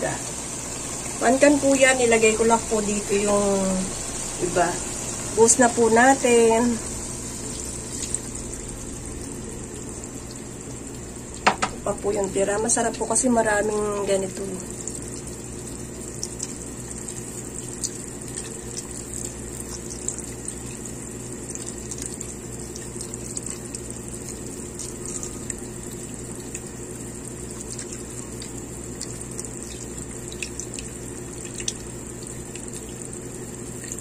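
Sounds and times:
small ticks and pops: 27.6s - 33.1s.

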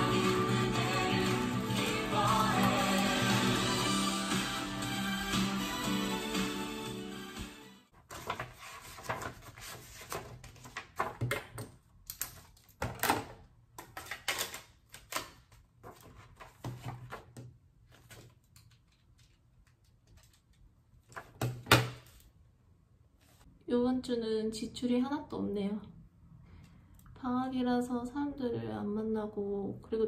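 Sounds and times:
notebook pages rustling and tapping: 8.0s - 11.7s, 15.5s - 22.3s.

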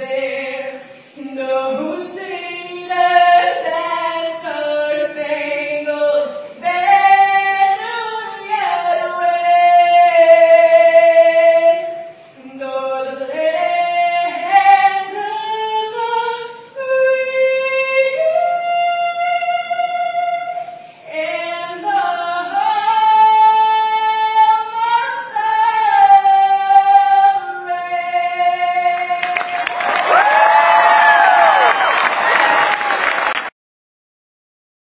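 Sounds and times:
crowd applauding and cheering: 29.2s - 33.5s.

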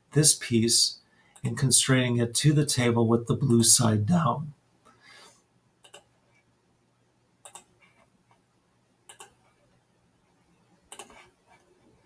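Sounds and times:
computer mouse clicks: 5.8s - 6.1s, 7.4s - 8.0s, 9.1s - 9.6s, 10.9s - 11.6s.

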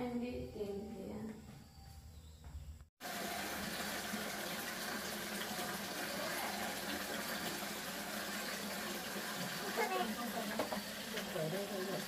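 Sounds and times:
water running into plastic basin: 3.0s - 12.0s.

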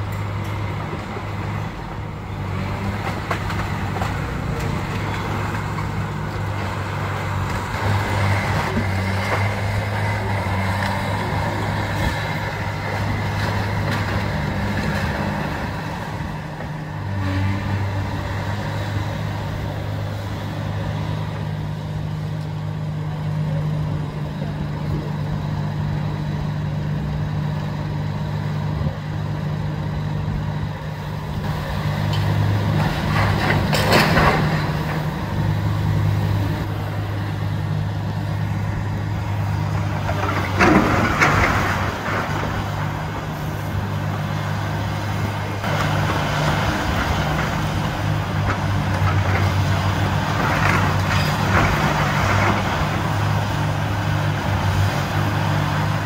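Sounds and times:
excavator diesel engine running: 0.0s - 56.0s
clatter: 32.1s - 35.1s, 40.0s - 42.9s, 45.6s - 53.3s.

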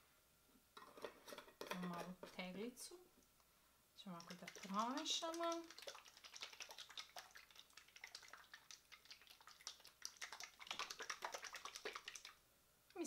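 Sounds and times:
liquid sloshing in shaken jar: 4.1s - 12.4s.

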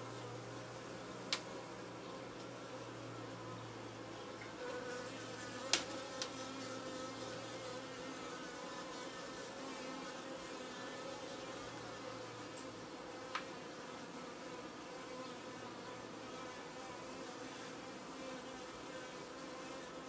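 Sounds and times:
honeybees buzzing: 0.0s - 20.0s.

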